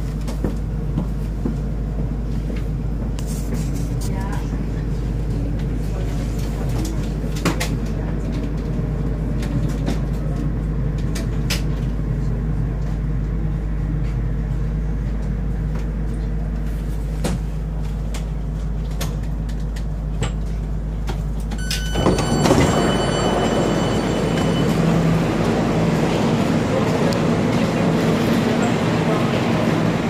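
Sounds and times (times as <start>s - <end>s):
electric train humming: 20.7s - 30.0s.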